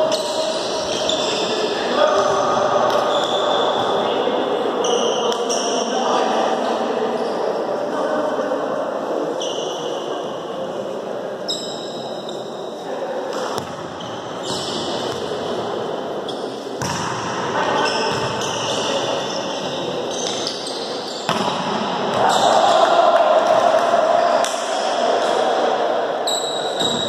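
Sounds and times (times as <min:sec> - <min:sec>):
court shoes squeaking: 0:00.0 - 0:04.1, 0:04.8 - 0:05.9, 0:09.4 - 0:10.2, 0:11.5 - 0:15.6, 0:16.2 - 0:22.8, 0:26.2 - 0:27.0.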